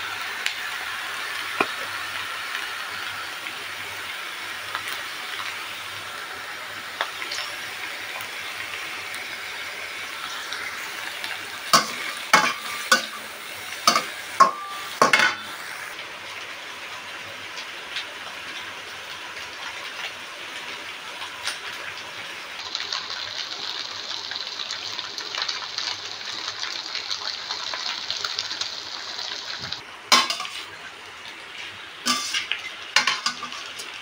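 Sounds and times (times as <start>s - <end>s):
stir-fry sizzling in a wok: 0.0s - 34.0s
metal spatula clanking on wok: 11.8s - 13.2s, 13.8s - 15.5s, 30.1s - 30.7s, 32.1s - 33.8s.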